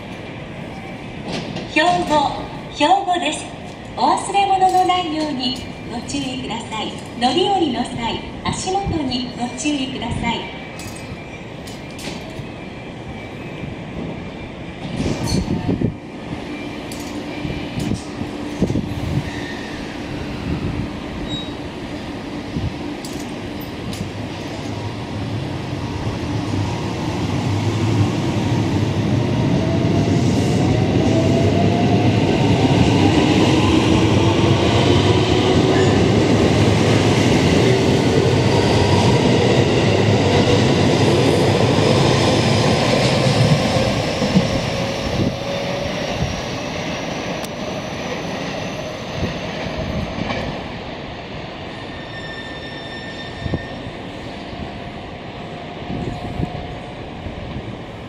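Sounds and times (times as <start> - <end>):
wheels rumbling on rail: 14.0 - 58.0.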